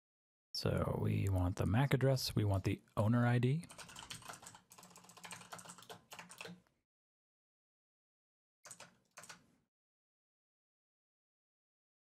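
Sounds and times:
typing on computer keyboard: 0:03.7 - 0:06.6, 0:08.7 - 0:09.5.

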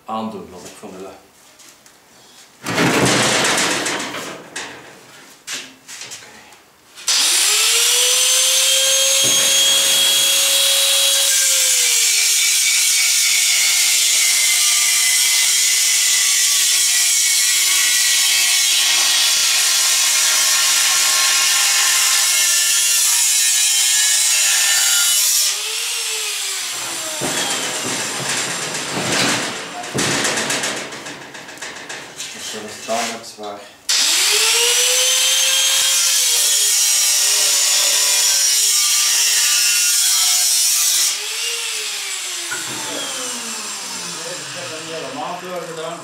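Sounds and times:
angle grinder cutting steel: 0:07.1 - 0:29.0, 0:33.9 - 0:46.0.

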